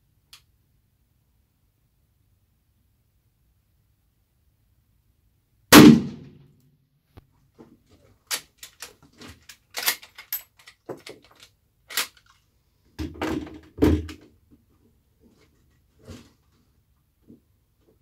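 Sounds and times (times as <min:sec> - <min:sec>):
rifle metallic clicks and clacks: 0:08.2 - 0:12.4.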